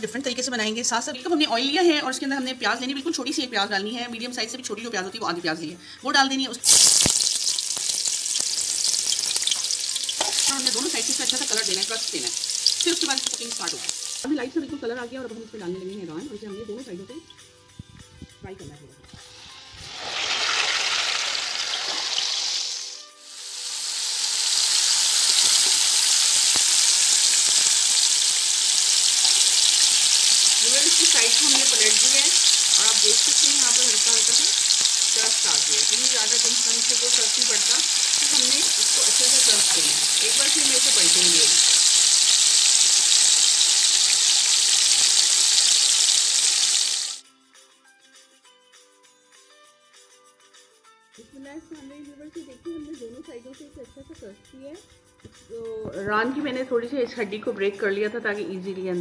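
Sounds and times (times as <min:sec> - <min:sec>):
faint background music: 0:00.0 - 0:46.6, 0:47.2 - 0:59.0
meat sizzling in hot oil: 0:06.6 - 0:14.3, 0:19.2 - 0:47.2.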